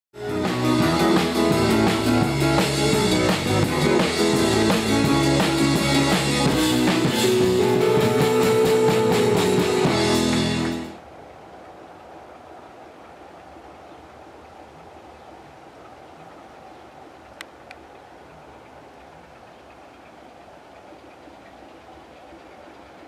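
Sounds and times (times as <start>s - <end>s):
drum beat: 0.2s - 11.0s
guitar: 0.2s - 11.0s.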